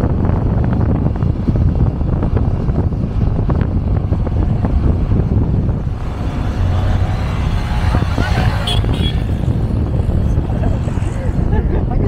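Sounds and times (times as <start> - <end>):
motorcycle engine rumble: 0.0 - 12.0
wind buffeting microphone: 0.0 - 12.0.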